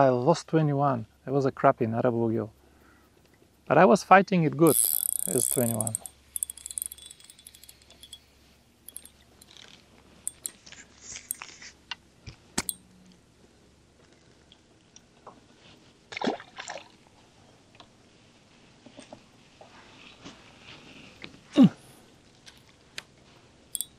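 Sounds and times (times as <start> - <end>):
fishing rod and reel clicks: 4.6 - 8.2, 8.9 - 10.6, 12.6 - 12.8
short clatter: 4.7 - 8.2, 8.9 - 11.5.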